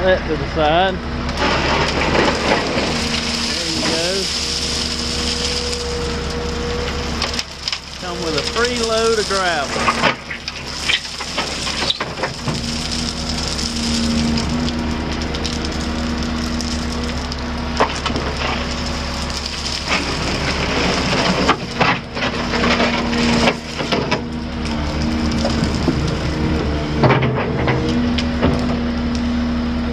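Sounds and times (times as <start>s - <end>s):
diesel engine running: 0.0s - 29.9s
gravel sliding: 0.0s - 29.9s
excavator bucket scraping steel: 1.2s - 29.0s.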